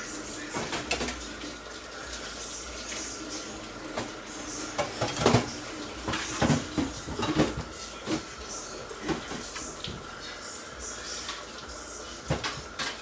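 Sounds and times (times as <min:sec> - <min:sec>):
pans hissing on hob: 0:00.0 - 0:13.0
pots and utensils clinking: 0:00.0 - 0:13.0.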